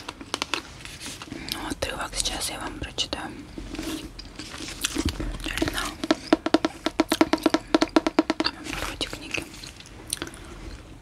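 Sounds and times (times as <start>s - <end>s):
fingernails tapping on book cover: 5.6s - 8.6s.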